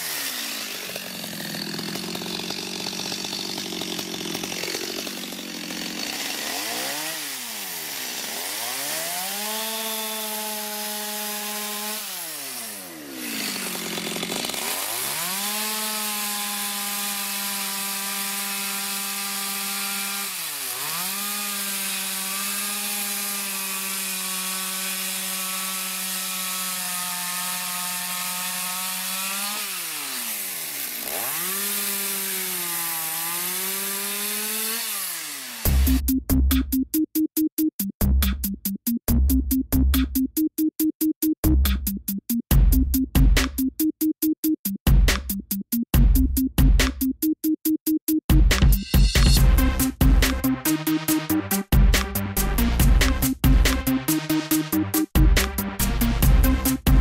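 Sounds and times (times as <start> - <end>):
chainsaw cutting log: 0.0 - 36.0, 49.2 - 57.0.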